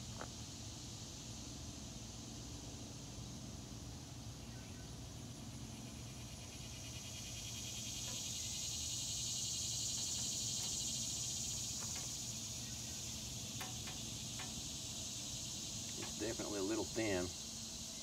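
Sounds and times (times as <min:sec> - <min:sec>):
insects trilling: 0:00.0 - 0:18.0
faint clicks: 0:13.6 - 0:14.6.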